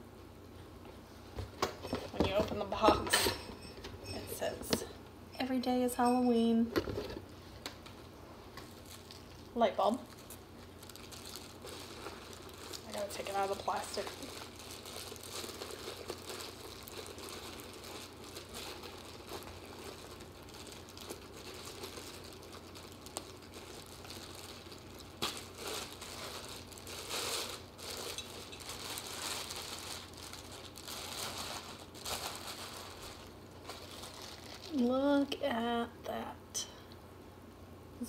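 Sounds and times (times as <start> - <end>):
plastic wrapping crinkling: 5.7 - 35.3.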